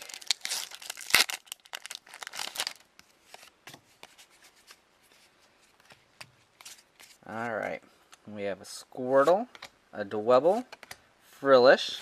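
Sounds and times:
foil wrapper crinkling and tearing: 0.0 - 2.9
cards being handled: 3.3 - 7.2.

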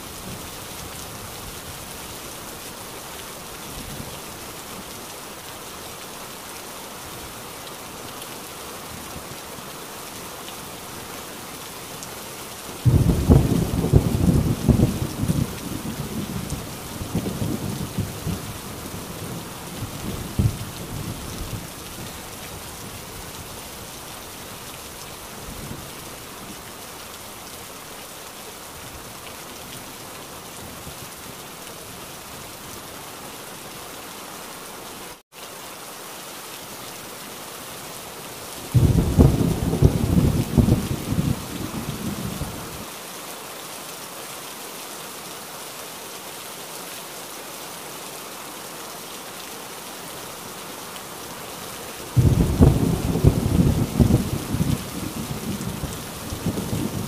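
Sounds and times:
heavy rain: 0.0 - 57.0
thunder rumbling: 12.8 - 18.5, 38.8 - 42.6, 52.2 - 57.0.

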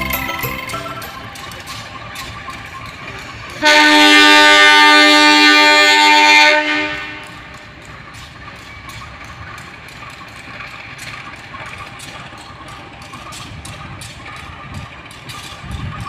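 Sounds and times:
distant locomotive engine running: 0.0 - 16.0
locomotive horn: 3.6 - 7.5.

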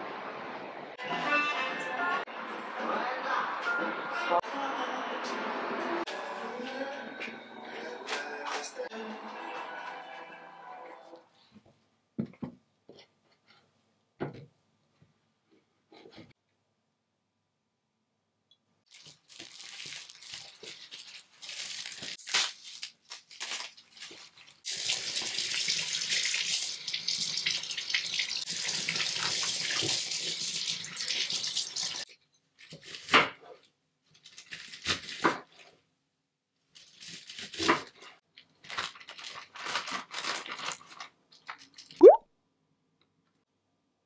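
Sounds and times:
crackling leaf rustles: 18.9 - 24.6, 38.6 - 41.9
tap water running into sink: 24.7 - 32.0.

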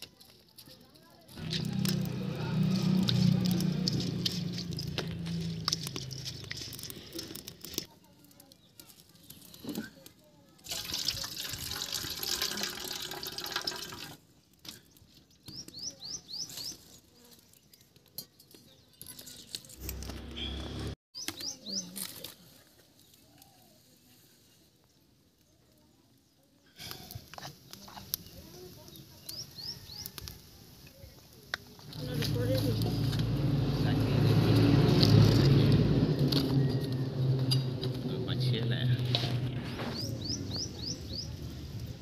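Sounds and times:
water sloshing and pouring: 10.6 - 14.2.

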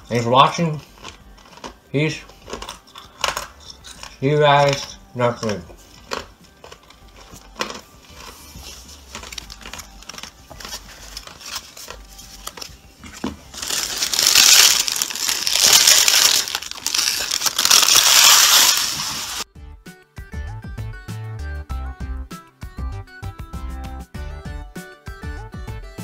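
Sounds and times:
foil wrappers crinkling: 0.7 - 19.4.

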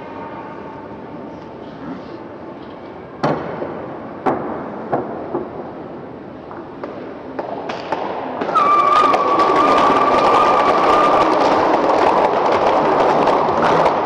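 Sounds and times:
pool balls clacking: 7.7 - 14.0.

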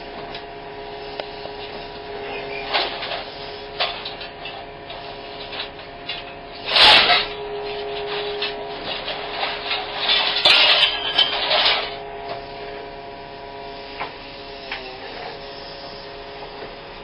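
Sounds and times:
machine whine: 0.0 - 17.0
scrap metal scraping and crunching: 2.5 - 12.0
loud metal grinding: 6.6 - 12.0.

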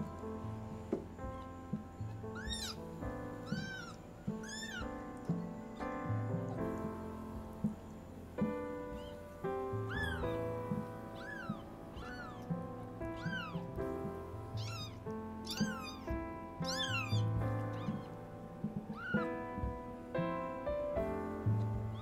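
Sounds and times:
soft piano music: 0.0 - 22.0
kitten mewing: 2.4 - 2.8, 3.4 - 4.9, 8.9 - 9.2, 9.9 - 12.5, 13.2 - 13.8, 14.6 - 18.2, 18.8 - 19.3.

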